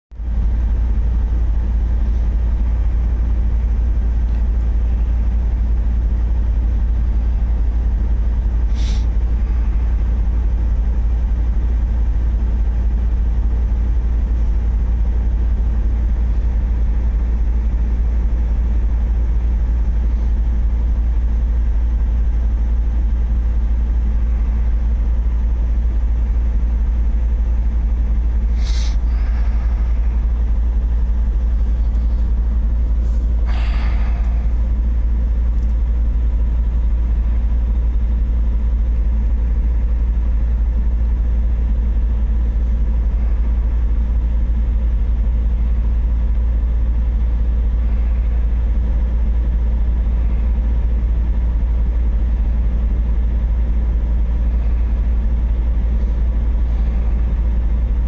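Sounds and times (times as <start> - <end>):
truck diesel engine droning: 0.2 - 58.0
air brake hiss: 8.7 - 9.1, 28.5 - 29.8.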